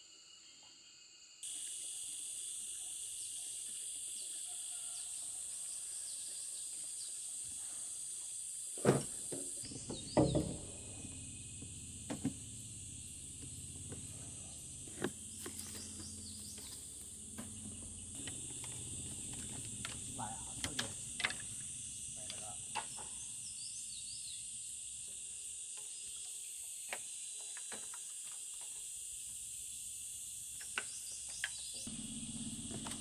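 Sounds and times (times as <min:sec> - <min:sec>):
insects buzzing: 0:00.0 - 0:33.0
generator running hum: 0:09.6 - 0:23.0, 0:31.9 - 0:33.0.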